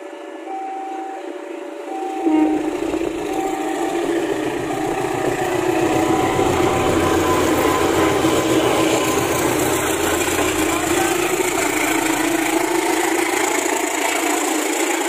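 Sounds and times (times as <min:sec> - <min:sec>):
diesel locomotive passing: 0:00.0 - 0:15.0.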